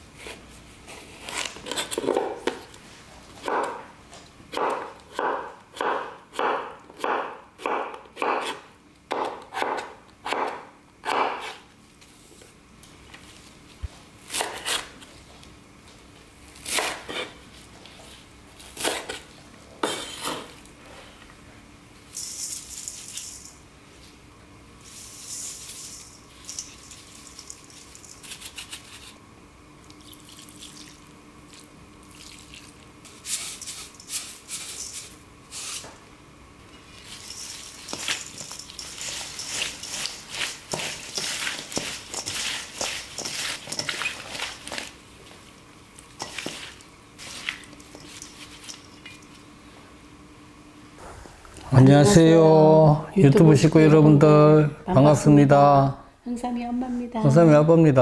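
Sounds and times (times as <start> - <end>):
seeds sprinkled into metal bowl: 22.1 - 23.6, 24.9 - 28.7, 36.9 - 44.6.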